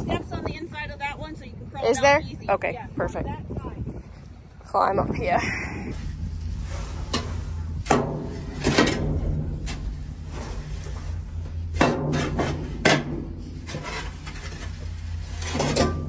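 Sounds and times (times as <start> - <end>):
steady low hum: 0.0 - 16.0
metal scraper scraping metal bin: 6.7 - 11.1, 11.7 - 16.0.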